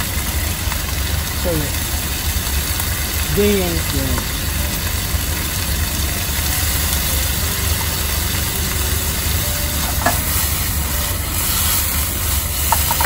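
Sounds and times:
soy sauce sizzling in frying pan: 0.0s - 13.0s
pan knocking against burner: 9.8s - 10.3s.

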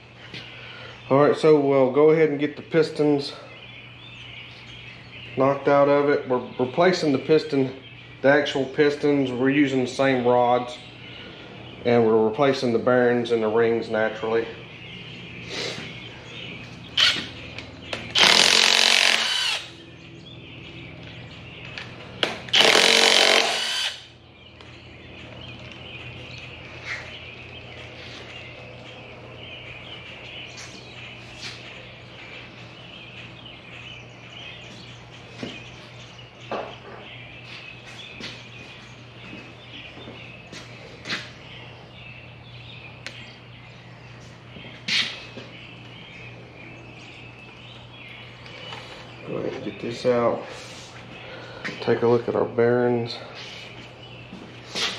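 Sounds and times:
steady low hum: 0.0s - 54.9s
impact wrench bursts: 17.0s - 17.3s, 18.1s - 19.7s, 22.5s - 24.1s.

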